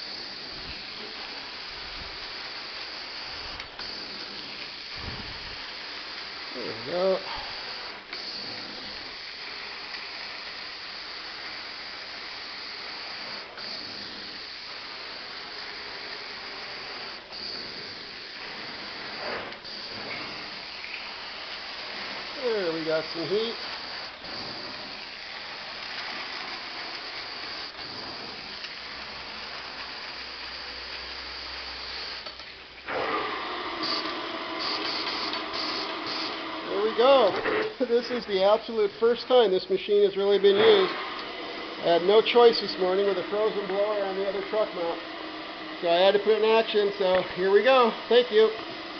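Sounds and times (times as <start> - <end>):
carpet extraction wand hissing: 0.0 - 48.9
air whistling into vacuum: 32.9 - 39.4.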